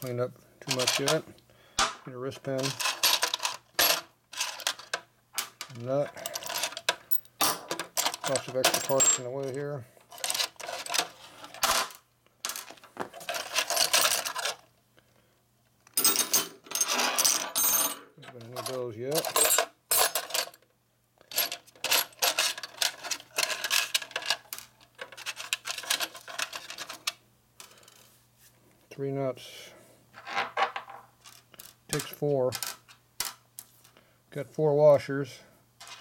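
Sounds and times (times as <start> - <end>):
metal bolts and nuts clinking: 0.0 - 1.3, 2.2 - 14.6, 15.9 - 20.6, 21.3 - 28.0, 30.2 - 33.4.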